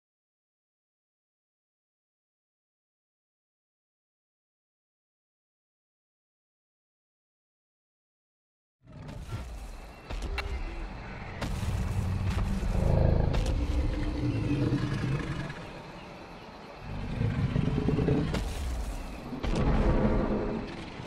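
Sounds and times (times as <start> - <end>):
dinosaur growls: 11.9 - 15.8, 16.8 - 18.8, 19.5 - 21.0.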